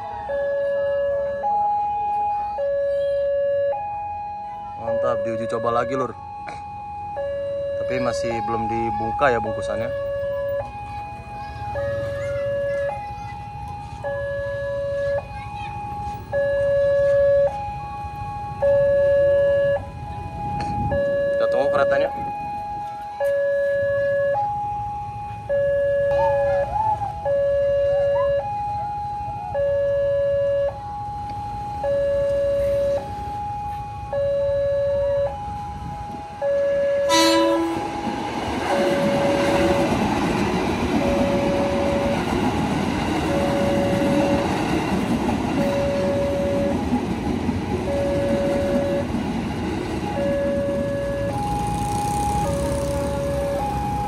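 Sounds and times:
level-crossing two-tone alarm: 0.0s - 54.0s
train wheels rumbling on rails: 35.6s - 54.0s
train horn blast: 37.0s - 38.0s.

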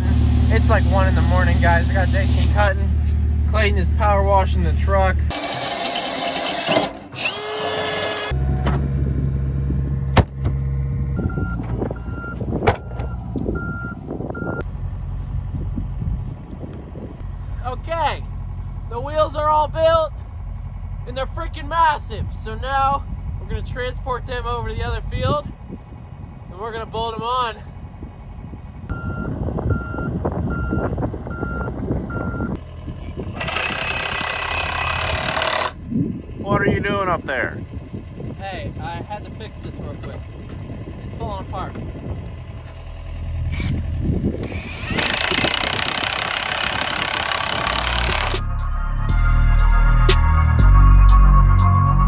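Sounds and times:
diesel engine humming: 0.0s - 52.0s
backup alarm beeping: 11.1s - 14.7s, 28.9s - 32.6s.

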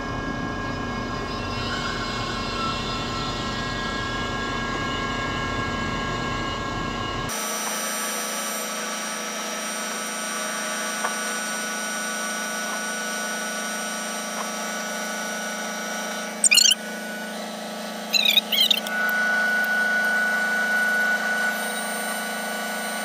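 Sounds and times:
high-pitched squeals: 16.4s - 16.8s, 18.1s - 19.1s
crane machinery humming: 16.4s - 22.9s.

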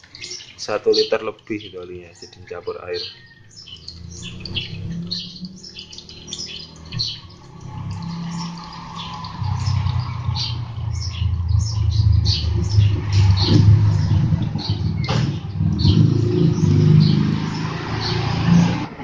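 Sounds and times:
small birds chirping: 0.0s - 18.4s
vehicle engine rumble: 3.5s - 19.0s.

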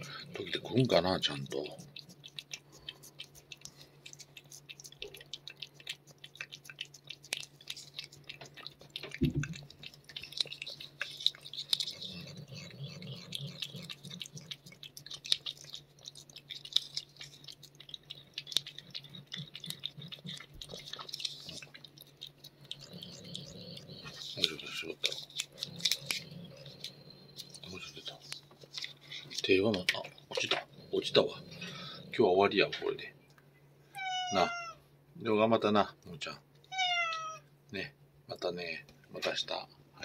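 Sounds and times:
cat licking: 0.0s - 32.3s.

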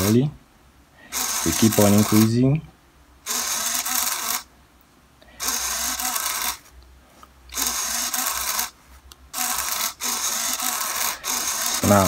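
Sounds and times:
servo motor whirring: 1.1s - 2.3s, 3.3s - 4.5s, 5.4s - 6.7s, 7.5s - 12.0s.

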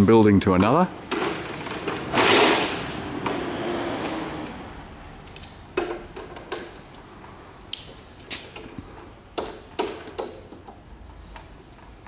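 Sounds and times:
metal parts clicking: 5.0s - 7.0s.

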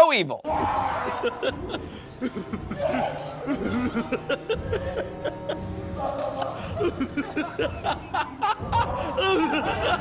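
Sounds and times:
background music: 0.0s - 10.0s
man laughing maniacally: 1.0s - 5.6s, 6.6s - 10.0s.

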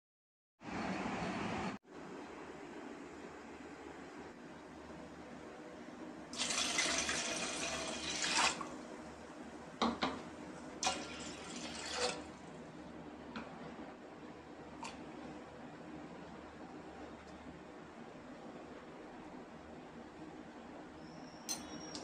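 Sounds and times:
water pouring into metal pot: 6.4s - 8.7s, 10.8s - 12.3s.

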